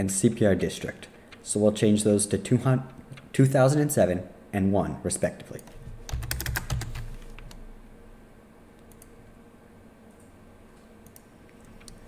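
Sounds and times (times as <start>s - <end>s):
steady low hum: 0.0s - 12.0s
computer keyboard clicks: 5.6s - 7.6s, 11.0s - 12.0s
computer mouse clicks: 8.8s - 9.1s, 11.0s - 12.0s.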